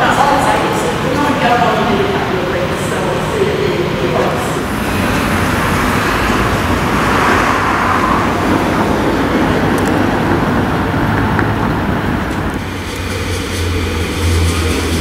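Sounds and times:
low hum: 0:00.0 - 0:15.0
cars driving past: 0:03.8 - 0:15.0.

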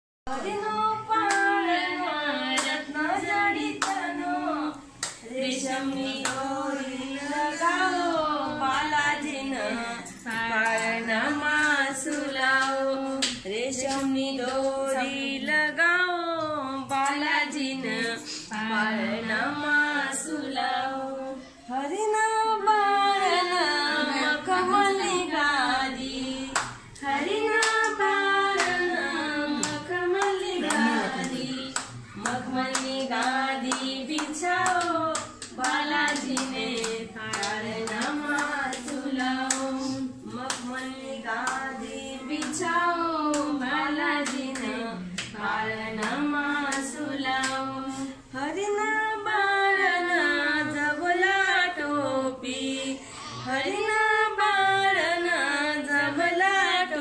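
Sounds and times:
rhythmic hand clapping: 0:00.3 - 0:07.1, 0:08.6 - 0:15.2, 0:25.4 - 0:48.1
women singing: 0:00.3 - 0:57.0.

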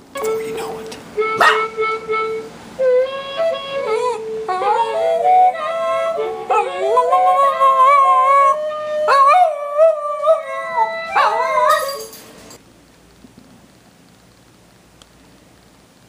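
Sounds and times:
dog howling: 0:01.4 - 0:01.7, 0:03.8 - 0:12.1.

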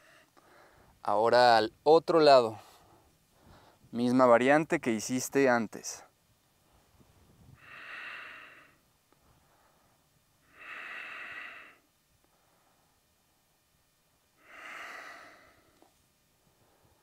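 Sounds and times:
man breathing deeply: 0:00.0 - 0:01.0, 0:02.6 - 0:03.9, 0:07.5 - 0:13.0, 0:14.4 - 0:15.9, 0:16.5 - 0:17.0.

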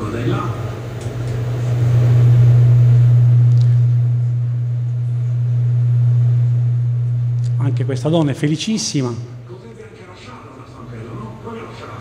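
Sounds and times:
low-pitched hum: 0:00.8 - 0:09.8.

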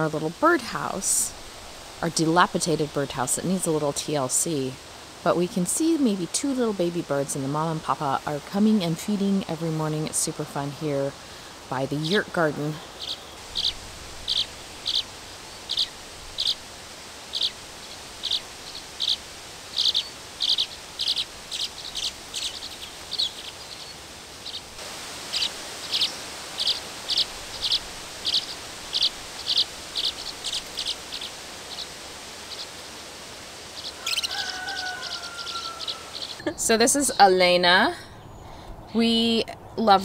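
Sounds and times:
swallows chirping: 0:11.9 - 0:16.7, 0:17.3 - 0:33.0, 0:33.7 - 0:37.4.

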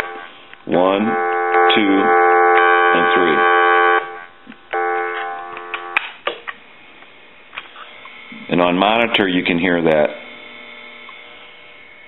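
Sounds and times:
buzzy tone from speaker: 0:00.0 - 0:06.0, 0:07.6 - 0:12.0.

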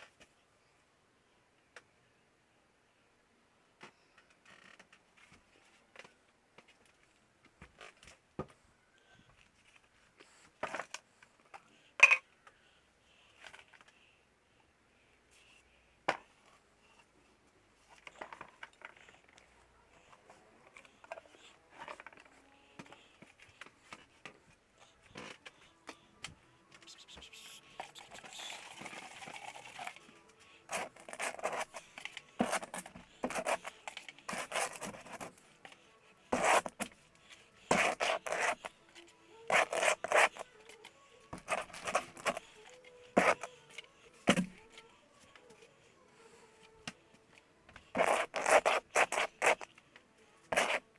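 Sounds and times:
paint scraped across canvas: 0:36.3 - 0:36.9, 0:37.7 - 0:38.7, 0:48.0 - 0:49.7, 0:50.5 - 0:50.8.

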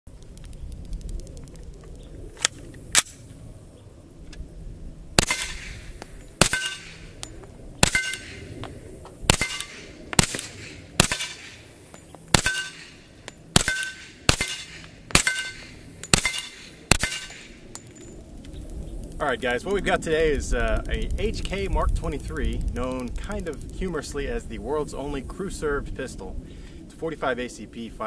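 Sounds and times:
suppressed pistol shots: 0:05.2 - 0:08.5, 0:09.3 - 0:11.7, 0:12.3 - 0:17.8.

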